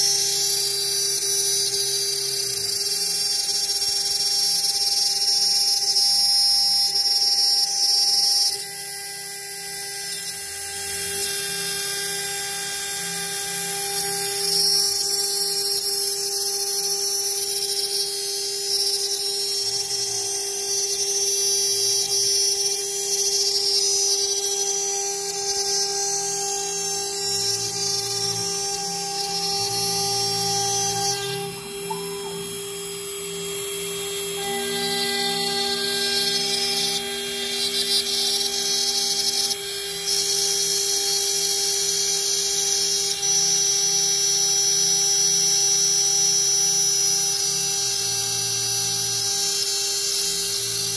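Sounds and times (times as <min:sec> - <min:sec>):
end mill cutting plate: 0:24.3 - 0:41.3
spindle whining: 0:24.4 - 0:40.6.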